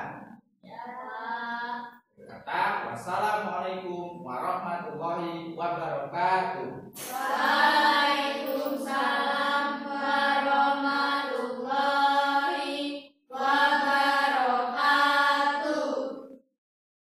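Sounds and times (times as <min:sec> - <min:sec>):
students chanting in unison: 0:07.0 - 0:16.2.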